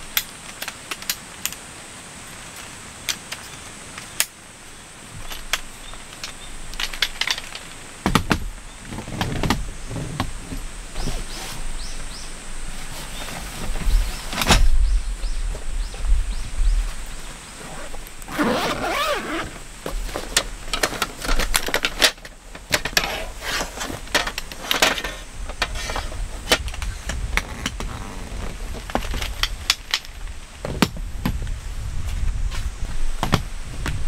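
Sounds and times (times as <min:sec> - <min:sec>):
low wind rumble on microphone: 0:03.7 - 0:34.0
canvas bag rustling: 0:16.9 - 0:24.1, 0:27.3 - 0:29.4.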